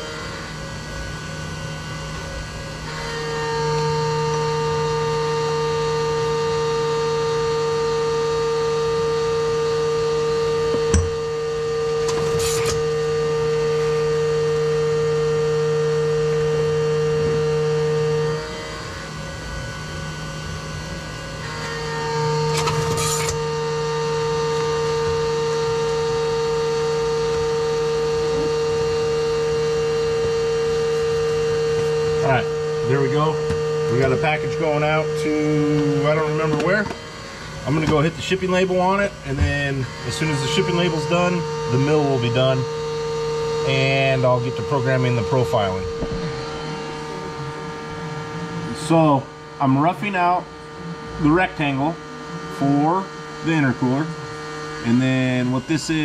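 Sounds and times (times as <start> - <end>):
milling machine whine: 0.0 - 56.0
sharp knock: 45.9 - 46.4.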